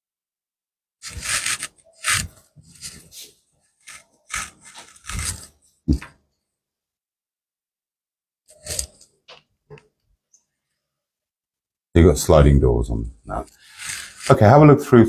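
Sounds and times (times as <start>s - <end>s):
scraping and rubbing: 1.0s - 5.9s, 8.5s - 9.1s, 13.4s - 14.6s.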